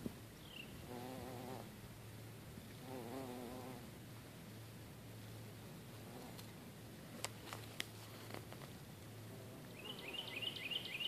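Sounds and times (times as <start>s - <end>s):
small bird chirping: 9.7s - 11.0s.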